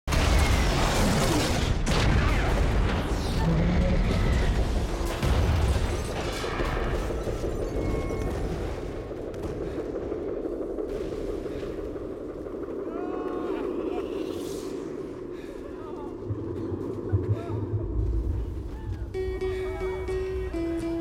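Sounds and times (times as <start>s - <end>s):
explosions booming: 0.1s - 12.8s.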